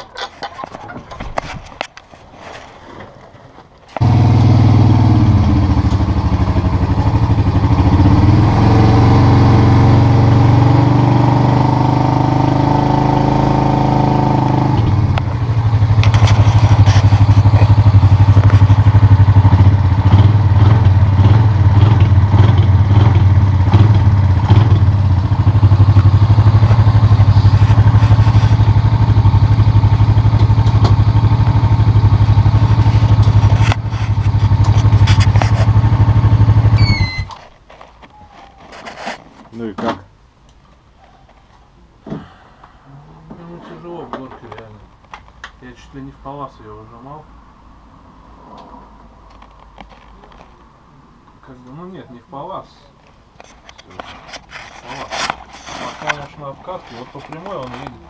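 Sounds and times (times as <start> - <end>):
quad bike engine running: 4.0 - 37.3.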